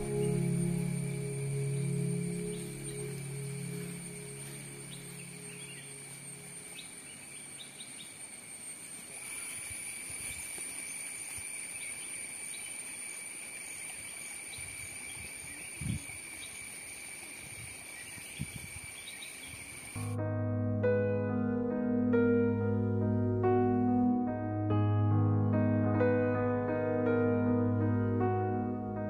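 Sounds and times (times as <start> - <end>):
soft piano: 0.0 - 7.4, 20.0 - 29.0
insects chirring: 0.0 - 20.2.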